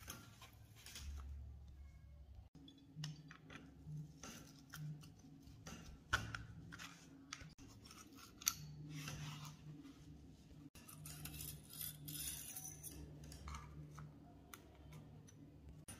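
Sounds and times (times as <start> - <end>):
pliers clicking and scraping on metal: 10.8 - 14.1.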